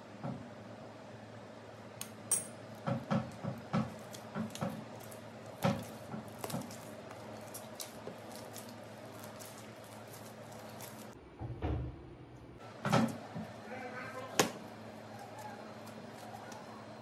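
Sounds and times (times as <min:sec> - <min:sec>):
hands kneading dough: 0:02.7 - 0:11.2, 0:12.7 - 0:17.0.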